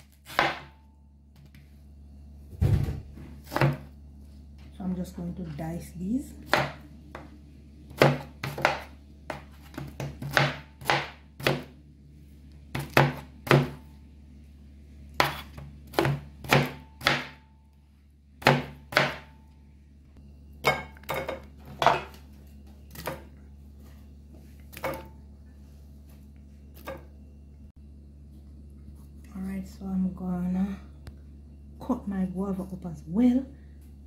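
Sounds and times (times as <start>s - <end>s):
knife chopping on plastic board: 7.9s - 11.7s, 12.7s - 13.8s, 15.2s - 17.4s, 18.4s - 19.3s.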